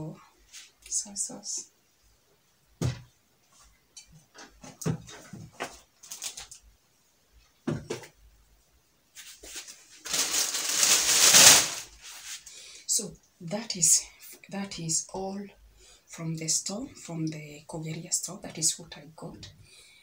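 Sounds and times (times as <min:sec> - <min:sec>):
small knocks and rustles: 0:02.8 - 0:06.6
loud rustling near microphone: 0:09.2 - 0:12.4.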